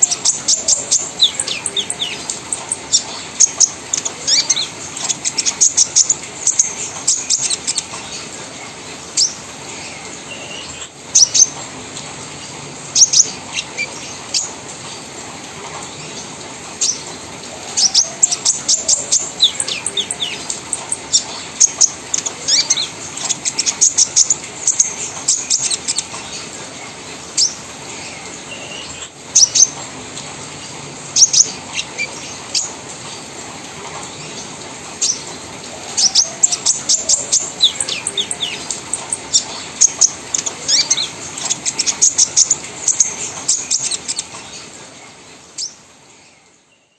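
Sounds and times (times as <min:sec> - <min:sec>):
bird chirping rapidly: 0:36.0 - 0:44.3.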